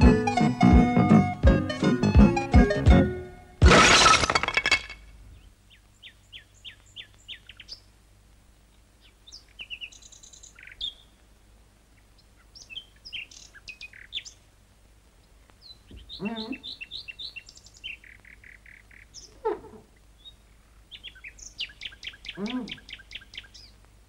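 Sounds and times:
cartoon theme music: 0:00.0 - 0:03.6
songbirds chirping: 0:05.1 - 0:24.0.

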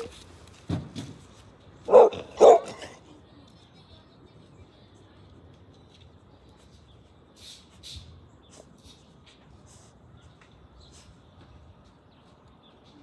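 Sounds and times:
small dog barking: 0:01.9 - 0:03.0.

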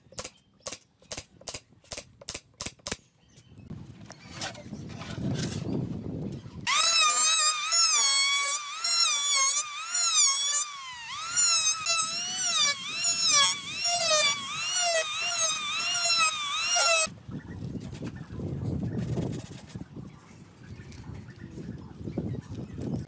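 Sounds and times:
electric planer whining: 0:06.7 - 0:17.1.

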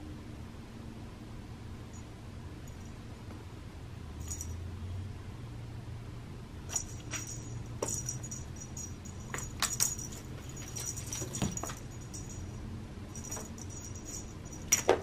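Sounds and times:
low steady hum: 0:00.0 - 0:15.0
wand toy jingling and tapping: 0:04.2 - 0:04.6, 0:06.7 - 0:15.0.

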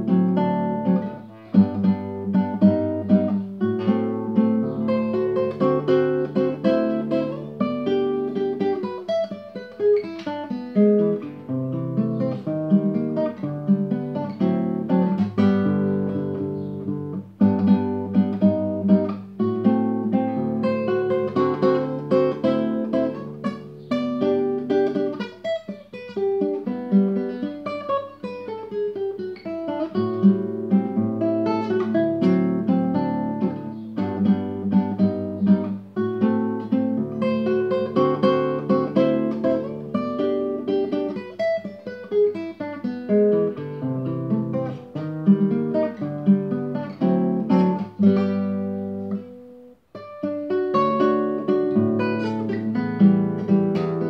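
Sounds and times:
classical guitar fingerstyle: 0:00.0 - 0:54.0.

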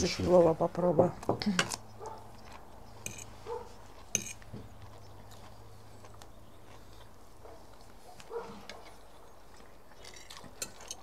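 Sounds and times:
cutlery clinking on plate: 0:03.0 - 0:03.3, 0:04.1 - 0:04.4.

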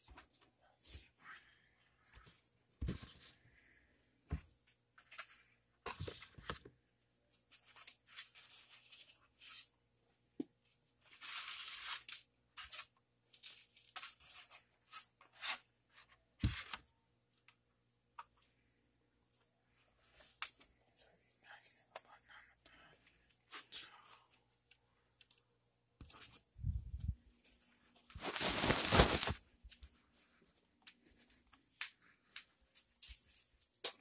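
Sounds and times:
packaging tearing and crinkling: 0:28.2 - 0:29.4.

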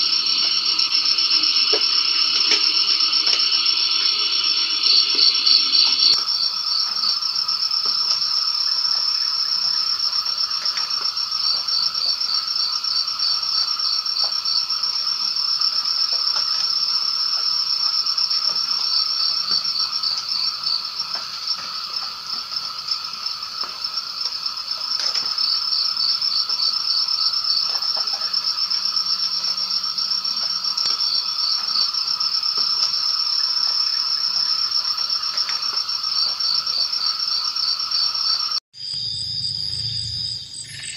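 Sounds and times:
insects trilling: 0:00.0 - 0:40.9
low insect drone: 0:00.0 - 0:40.9
pulsing insect chirps: 0:00.0 - 0:40.9.

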